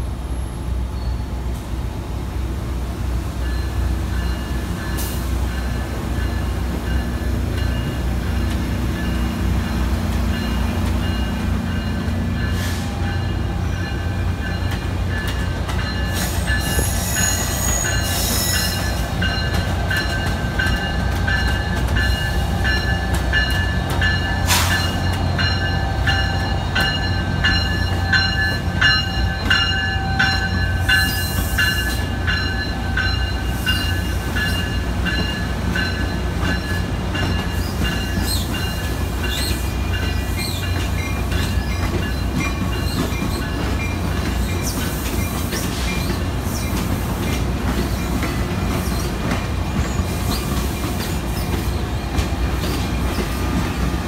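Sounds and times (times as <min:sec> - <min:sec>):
train rumbling: 0:00.0 - 0:54.0
train wheels squealing: 0:00.4 - 0:01.7, 0:10.3 - 0:54.0
wheels clacking over rail joints: 0:04.1 - 0:54.0.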